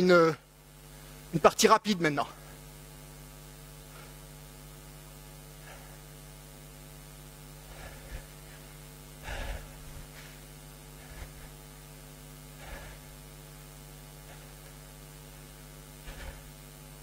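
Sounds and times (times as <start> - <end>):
electrical hum: 0.0 - 17.0
man breathing heavily: 3.8 - 6.8, 7.4 - 16.6.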